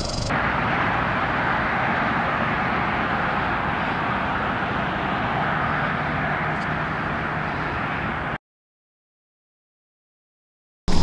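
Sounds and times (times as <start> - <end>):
low vehicle rumble: 0.0 - 8.4
vehicle rushing hiss: 0.0 - 8.4.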